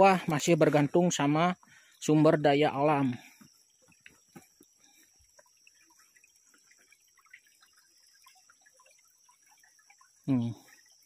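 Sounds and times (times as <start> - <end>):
faint small ticks and clicks: 3.2 - 11.0.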